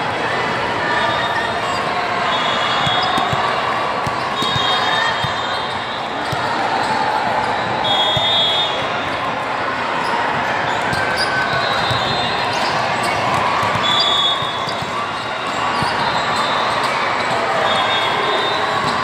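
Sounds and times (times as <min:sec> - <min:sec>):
volleyball hit and bouncing: 0:02.8 - 0:05.4, 0:10.9 - 0:16.1.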